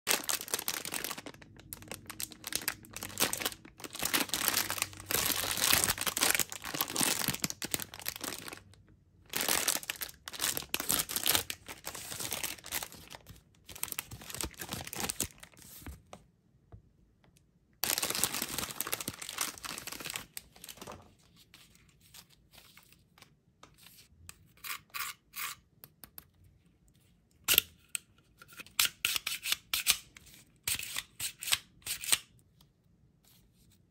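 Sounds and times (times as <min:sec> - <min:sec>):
plastic packaging crinkling: 0:00.1 - 0:16.0, 0:17.8 - 0:21.1.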